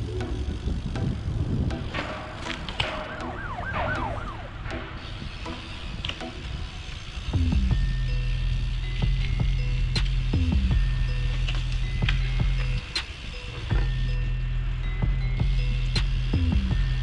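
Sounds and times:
street noise: 0.0 - 17.0
emergency siren yelping: 2.9 - 4.8.

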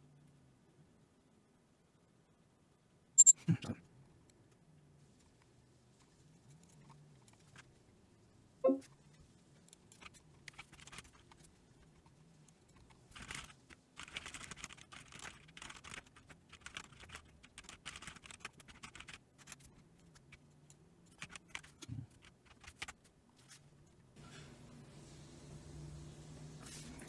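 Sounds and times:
keyboard and mouse clicking: 12.8 - 19.2.

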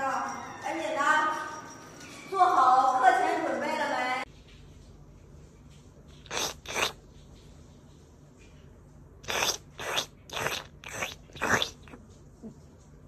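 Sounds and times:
cat sneezing: 6.2 - 7.0, 9.2 - 12.0.

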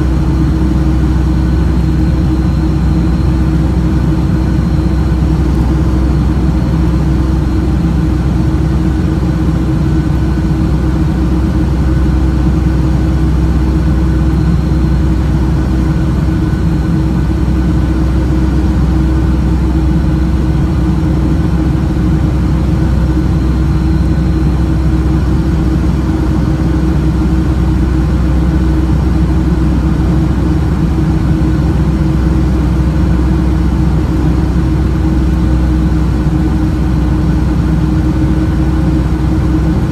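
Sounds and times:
jet engine drone and airflow: 0.0 - 39.9.

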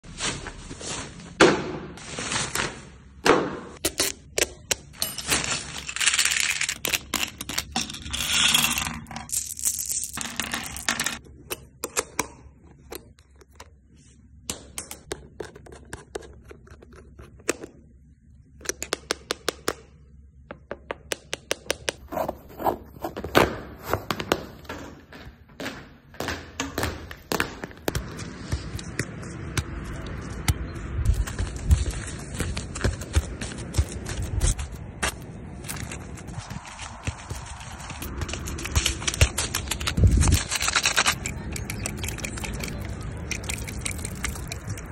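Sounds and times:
plastic bag rustling: 2.0 - 3.1, 5.1 - 6.8.

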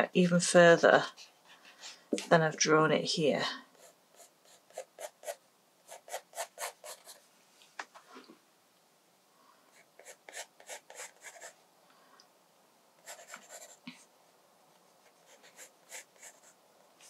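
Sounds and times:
pencil sketching on paper: 3.7 - 7.2, 9.7 - 11.6, 13.0 - 13.8, 15.0 - 16.6.

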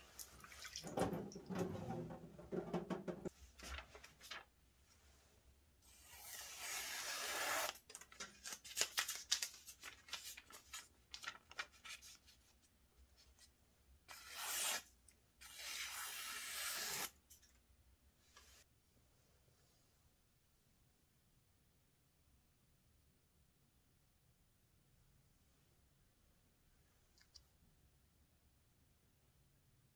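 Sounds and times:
knife slicing through paper: 5.9 - 7.8, 14.1 - 14.8, 15.4 - 17.1.

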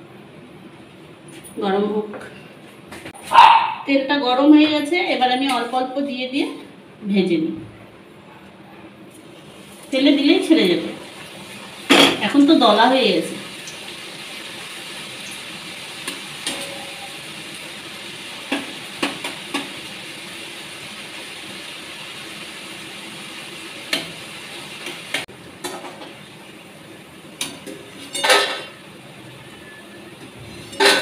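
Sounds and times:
dough frying in hot oil: 9.2 - 31.0.

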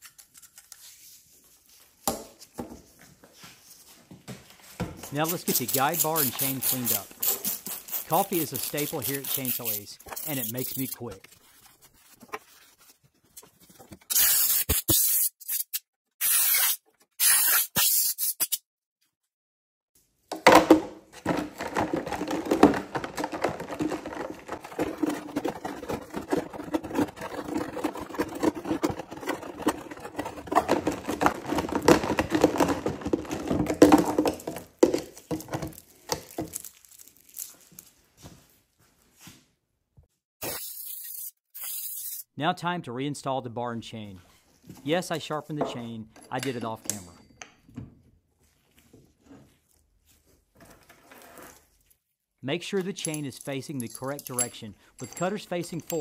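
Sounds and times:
scrubbing and scraping chainsaw bar: 5.1 - 11.2, 21.2 - 34.7.

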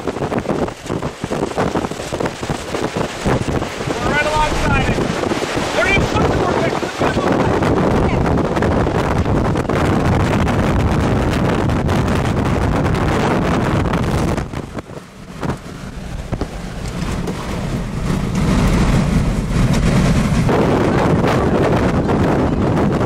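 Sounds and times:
strong wind buffeting microphone: 0.0 - 23.0.

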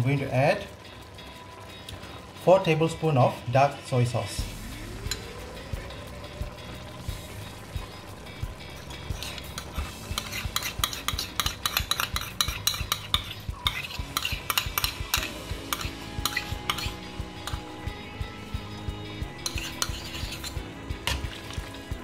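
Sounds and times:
broth boiling with pops: 0.0 - 22.0.

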